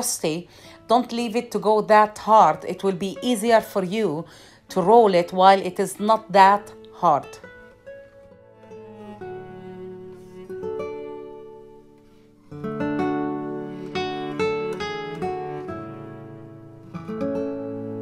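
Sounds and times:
acoustic guitar plucked and strummed: 0.0s - 18.0s.

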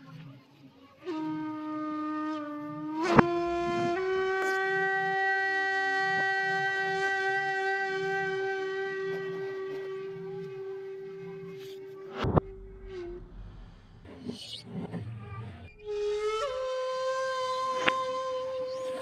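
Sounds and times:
sustained horn-like tone: 7.2s - 14.4s
sharp knock: 12.2s - 14.1s.

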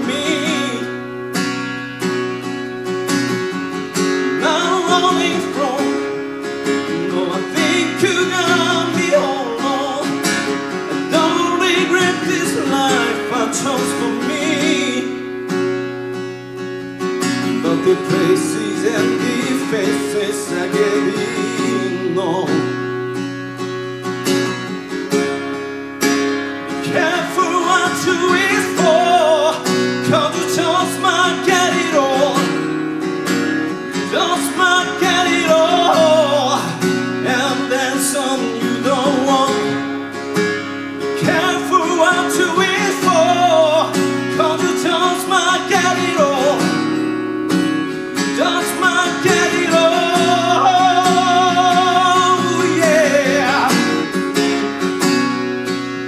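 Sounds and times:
man singing: 0.0s - 1.3s, 3.9s - 15.6s, 17.3s - 23.1s, 26.8s - 32.8s, 33.7s - 40.1s, 41.0s - 47.1s, 47.9s - 55.1s
acoustic guitar: 0.0s - 56.0s.

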